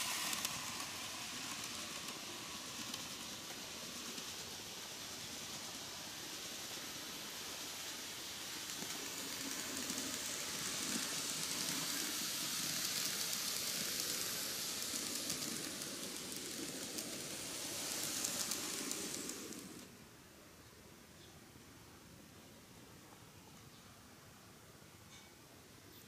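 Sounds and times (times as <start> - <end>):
model train rattling on track: 0.0 - 19.9.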